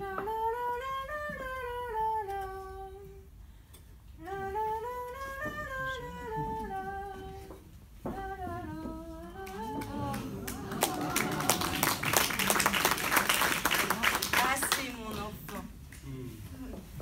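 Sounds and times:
woman humming a slow melody: 4.2s - 11.3s.

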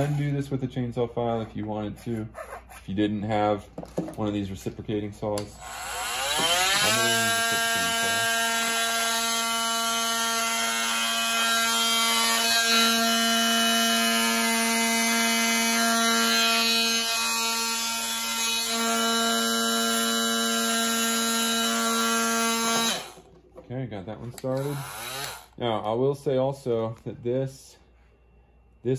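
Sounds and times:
oscillating multi-tool cutting plastic: 5.5s - 23.3s, 24.4s - 25.6s.

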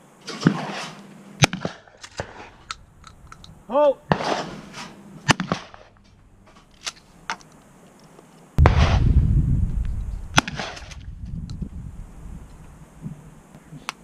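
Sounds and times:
shotgun shots: 4.1s - 4.6s, 5.2s - 5.9s, 8.6s - 11.2s
low rumble: 8.6s - 13.3s.

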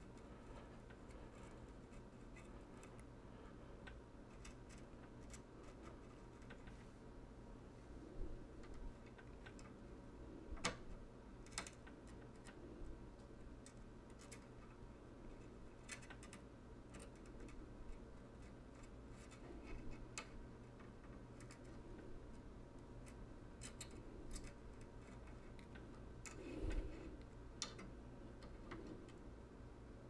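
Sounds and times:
low steady hum: 0.0s - 30.0s
soldering clicks and taps: 27.6s - 28.6s.

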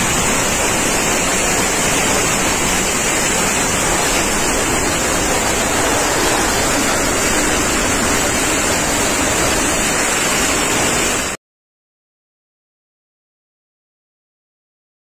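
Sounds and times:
tornado winds rushing: 0.0s - 11.4s.

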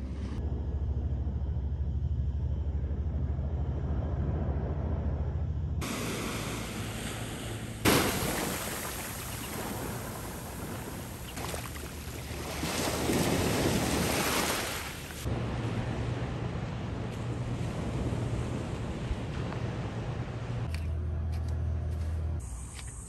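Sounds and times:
small waves washing on beach: 5.8s - 20.6s
wind on microphone: 5.8s - 20.8s.

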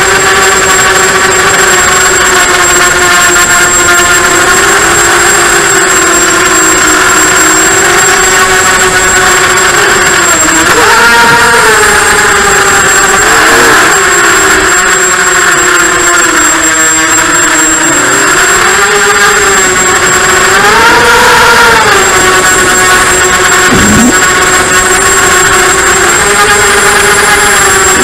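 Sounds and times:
drone motor and propeller whine: 0.0s - 28.0s.

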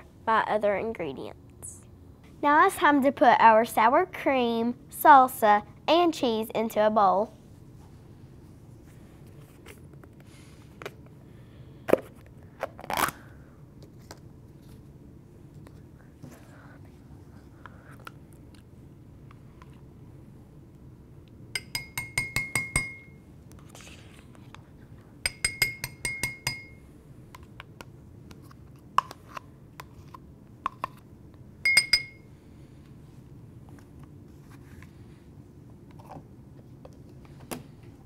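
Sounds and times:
metal spoon tapping glass bowl: 21.6s - 23.2s, 25.3s - 26.8s, 31.6s - 32.2s.

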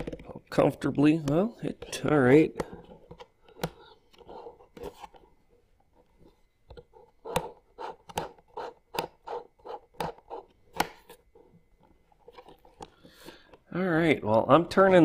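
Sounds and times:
handling and rubbing: 0.0s - 13.6s.

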